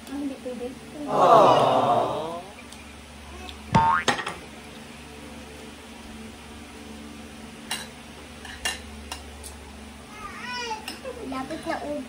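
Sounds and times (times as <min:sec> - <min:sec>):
cutlery clinking against plates: 0:07.7 - 0:09.3.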